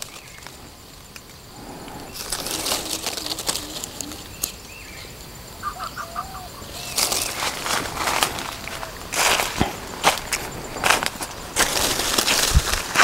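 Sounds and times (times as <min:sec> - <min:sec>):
leaves and branches rustling: 0:00.0 - 0:13.0
bird chirps: 0:01.9 - 0:07.6
footsteps crunching dry leaves: 0:02.1 - 0:04.6, 0:06.8 - 0:13.0.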